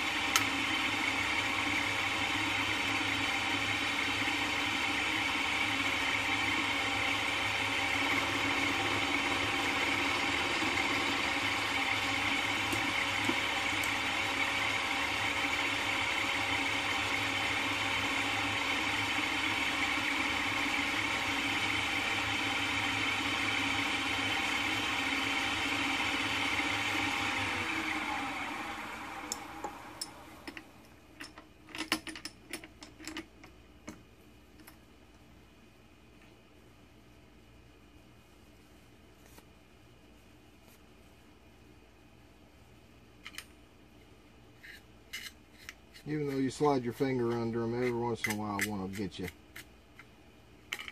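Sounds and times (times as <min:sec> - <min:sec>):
milling machine spindle running: 0:00.0 - 0:30.8.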